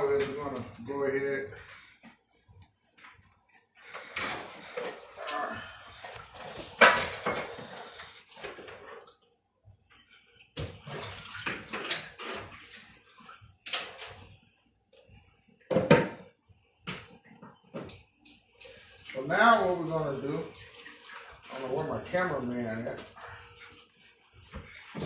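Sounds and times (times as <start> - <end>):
dishes clattering in sink: 6.4 - 9.1, 10.6 - 13.0, 15.7 - 16.3
water running from tap: 18.7 - 22.9.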